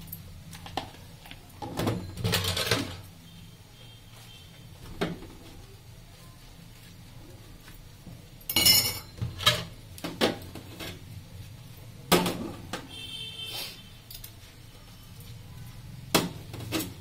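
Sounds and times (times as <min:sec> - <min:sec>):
dishes clattering in sink: 0:01.6 - 0:03.0, 0:08.5 - 0:11.0.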